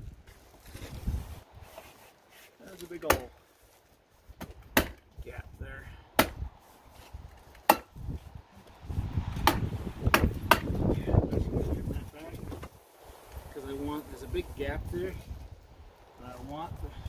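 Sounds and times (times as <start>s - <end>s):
low rumbling: 5.1s - 12.6s.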